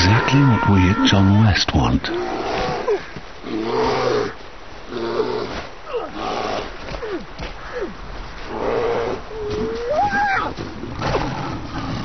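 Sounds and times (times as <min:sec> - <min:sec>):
bear growling and roaring: 0:02.1 - 0:07.2, 0:08.5 - 0:12.0.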